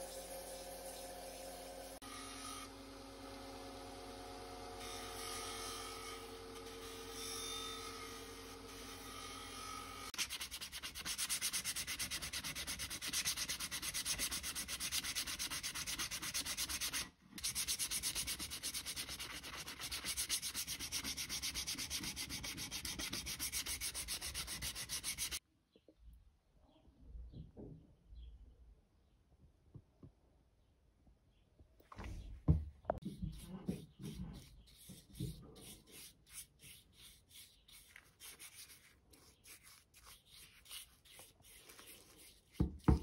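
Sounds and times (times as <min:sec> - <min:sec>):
sandpaper rubbing wood by hand: 0:10.1 - 0:25.4, 0:33.2 - 0:43.0.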